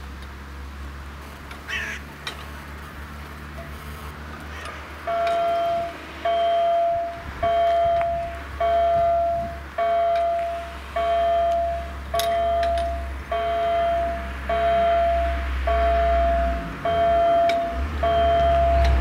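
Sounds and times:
level crossing bell ringing: 5.0s - 19.0s.

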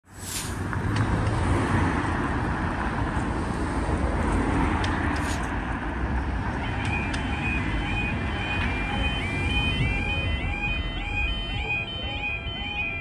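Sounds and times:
cars driving over crossing: 0.2s - 13.0s
wavering electronic warning alarm: 6.6s - 13.0s.

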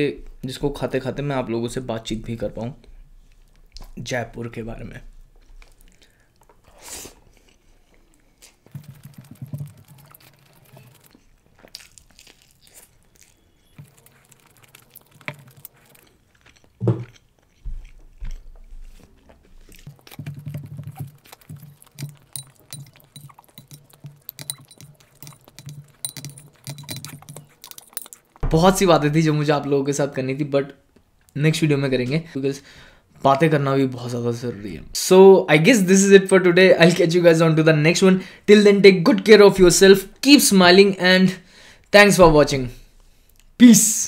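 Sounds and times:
chewing and mouth sounds: 5.3s - 28.4s
fingers clicking on plate: 19.8s - 28.4s
spoon clinking in glass bowl: 21.6s - 28.4s.

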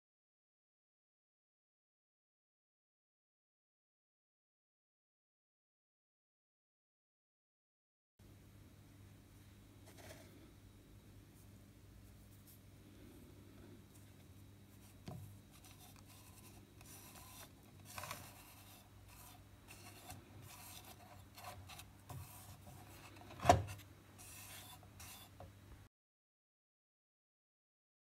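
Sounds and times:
fingertip rubbing ivory: 14.8s - 23.4s, 24.2s - 25.4s.

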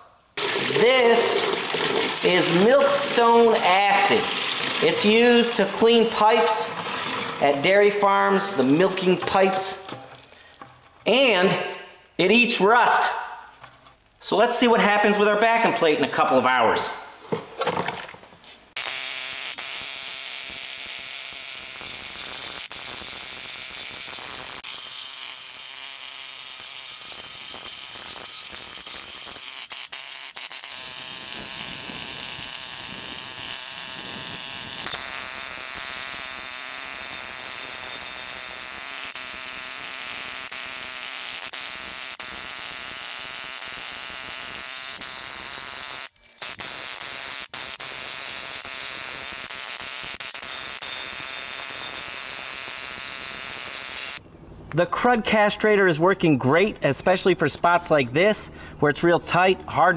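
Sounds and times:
needle scaler buzzing on steel: 18.7s - 54.2s.

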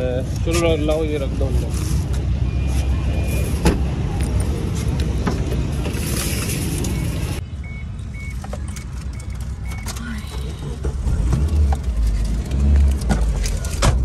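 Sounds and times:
car warning chime beeping: 7.0s - 10.0s.

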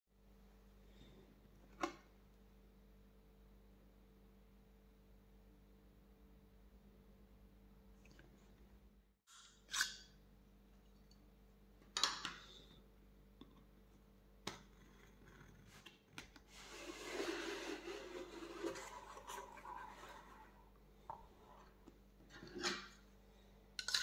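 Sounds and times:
cardboard rubbing and sliding: 16.5s - 20.7s.

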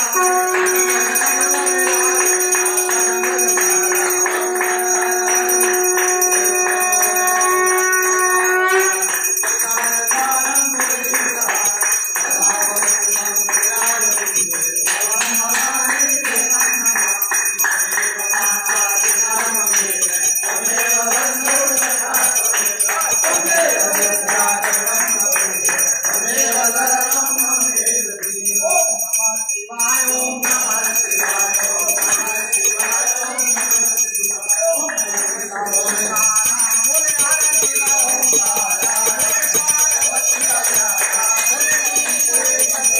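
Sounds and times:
long held note: 0.0s - 9.2s
crowd clapping rhythmically: 0.0s - 28.3s, 30.4s - 42.9s
crowd singing a hymn: 0.0s - 28.5s, 29.8s - 42.9s
temple bells ringing: 0.0s - 42.9s.

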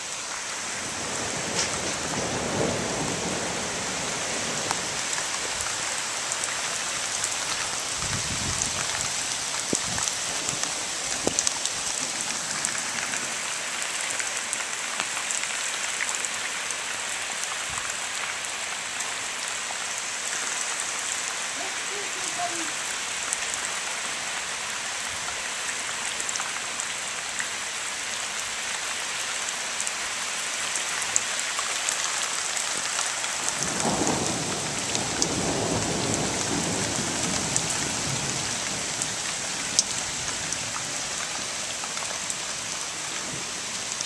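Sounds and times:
heavy rain: 0.0s - 44.0s
rain drop hits: 0.3s - 23.8s, 30.7s - 44.0s
thunder rumbling: 0.8s - 5.1s, 33.4s - 39.2s.

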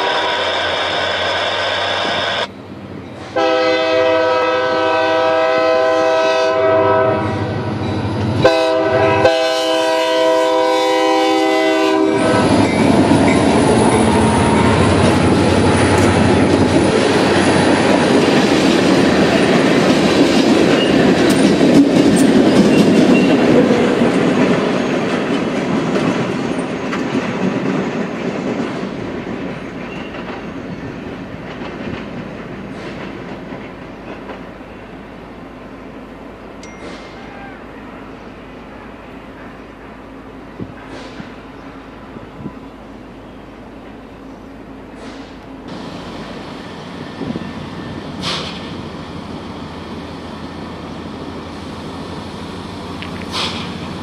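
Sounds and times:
locomotive air horn: 0.0s - 0.7s, 3.3s - 7.7s, 8.4s - 12.6s
train wheels clacking over rail joints: 12.2s - 34.6s, 48.2s - 48.8s, 53.0s - 54.0s.

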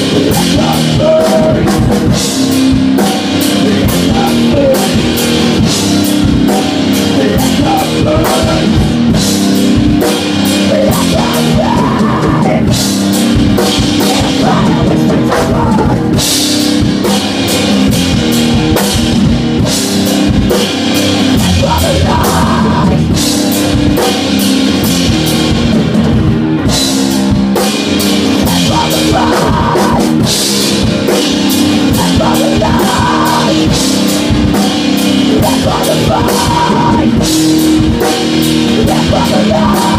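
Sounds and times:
person singing into a microphone: 0.0s - 2.3s, 3.0s - 5.8s, 6.4s - 9.3s, 10.1s - 12.8s, 13.6s - 16.3s, 21.1s - 23.4s, 28.2s - 30.4s, 31.6s - 39.9s
drum kit beating a rhythm: 0.0s - 39.9s
strummed electric guitar: 0.0s - 39.9s.

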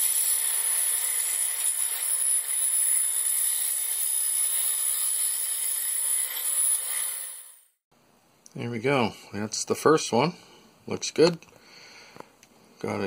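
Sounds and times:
power saw cutting plastic: 0.0s - 7.8s.

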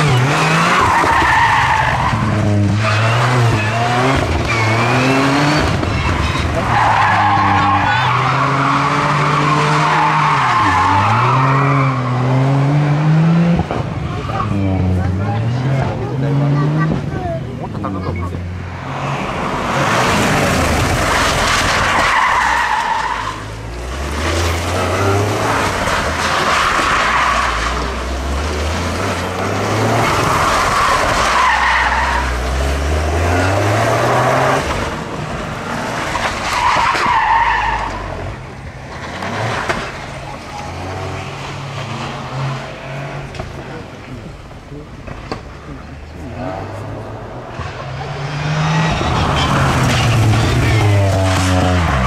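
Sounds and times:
rally car engine revving: 0.0s - 52.0s
tyres squealing: 0.1s - 12.2s, 29.7s - 32.6s.

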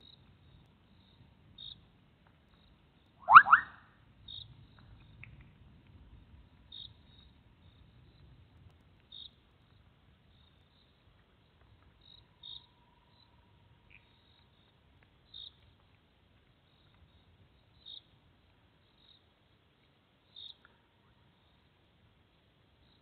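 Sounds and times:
low rumble of rain: 0.0s - 23.0s
frogs calling faintly: 2.5s - 5.3s, 16.7s - 23.0s.

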